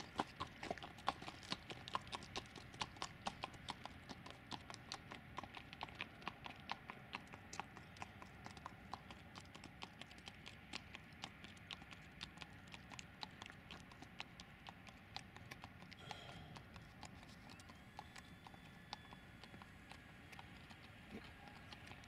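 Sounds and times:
faint irregular clicks: 3.7s - 16.1s, 16.8s - 22.0s.

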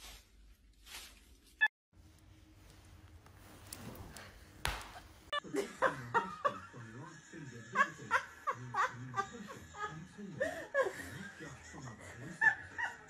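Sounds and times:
people laughing: 5.4s - 13.0s.

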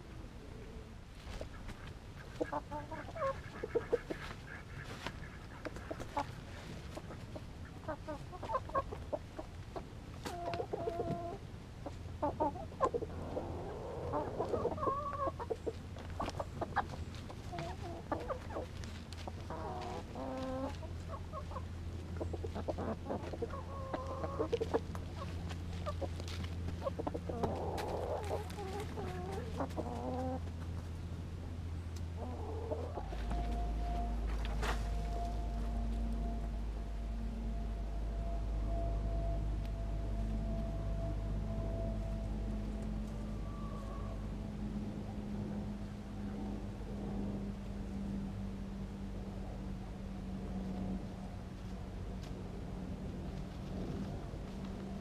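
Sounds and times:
steady low hum: 0.0s - 55.0s
chickens clucking: 0.4s - 31.1s, 31.7s - 36.6s.

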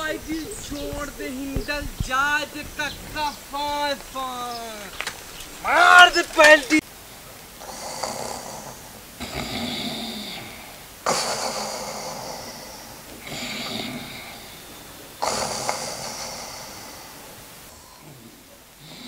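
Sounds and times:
man snoring: 7.6s - 19.0s.

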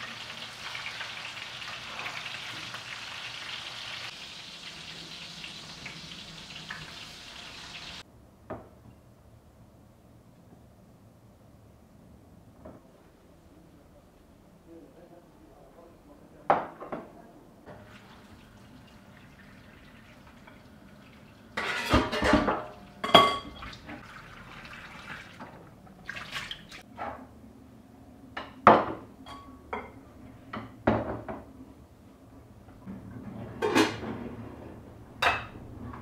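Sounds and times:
water running into a sink: 4.2s - 8.0s, 17.7s - 26.8s
dishes clinking and knocking: 21.6s - 24.0s, 28.3s - 31.5s, 32.9s - 34.2s, 35.2s - 36.0s.

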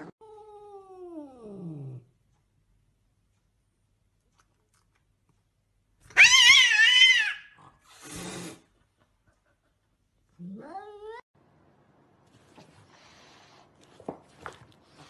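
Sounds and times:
cat yowling: 6.1s - 7.6s.

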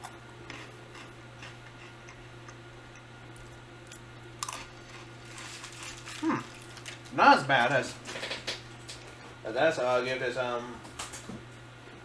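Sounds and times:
crunching and chewing snacks: 0.0s - 2.2s, 3.4s - 9.2s.

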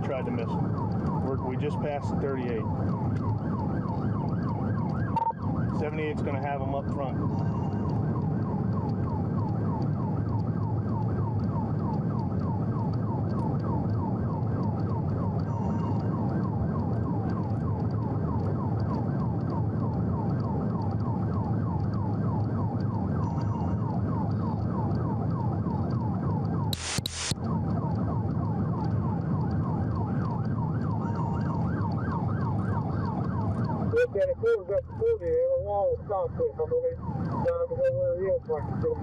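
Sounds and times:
police siren yelp: 0.0s - 39.0s
road and engine noise: 0.0s - 39.0s
loud burst of noise: 26.8s - 27.3s.

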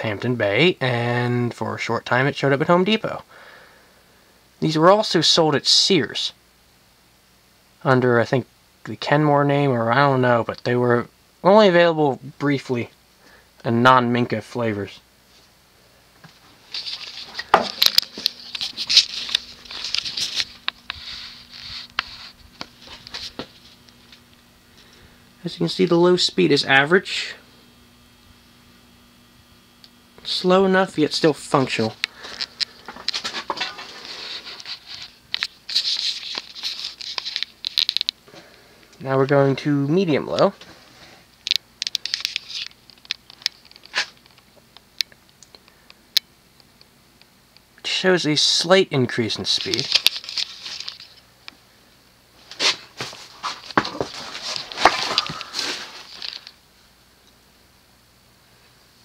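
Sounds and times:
ceiling fan motor humming: 0.0s - 59.0s
clicks and rustling: 16.2s - 24.4s, 31.6s - 38.2s, 41.4s - 45.6s, 49.5s - 51.2s, 52.4s - 56.6s
sharp clicks and crackles: 32.0s - 38.2s, 41.4s - 47.7s.

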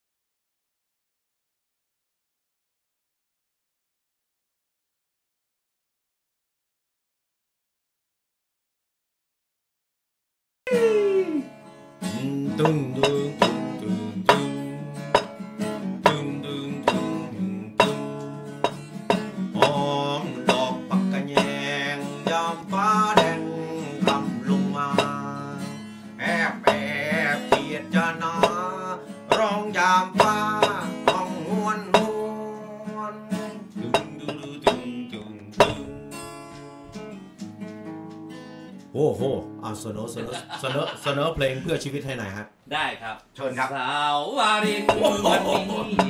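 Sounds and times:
person singing: 10.7s - 14.6s, 16.0s - 18.1s, 19.5s - 36.0s, 44.4s - 46.0s
acoustic guitar strumming: 10.7s - 40.8s, 44.6s - 46.0s.

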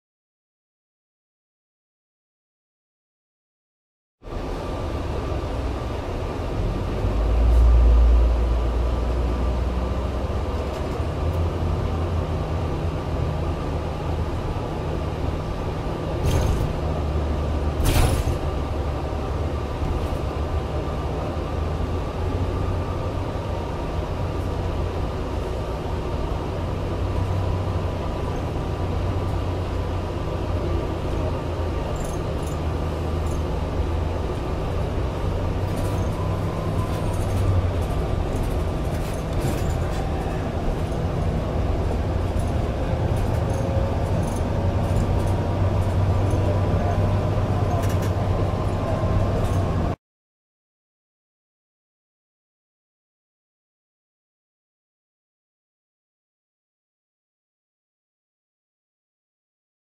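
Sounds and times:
bus engine and road noise: 4.2s - 50.0s.

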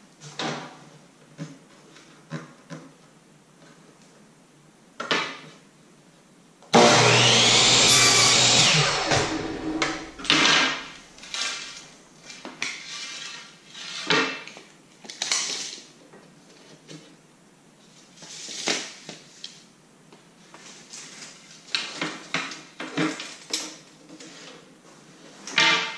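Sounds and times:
miter saw cutting wood: 6.8s - 11.7s.

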